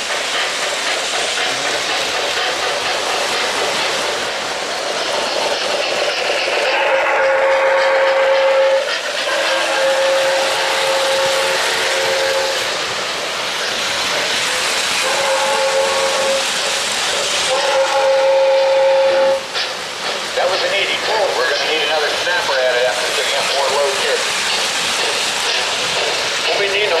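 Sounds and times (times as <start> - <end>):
steam hissing: 0.0 - 27.0
chime steam whistle blasts: 6.7 - 12.7, 15.0 - 16.5, 17.5 - 19.5.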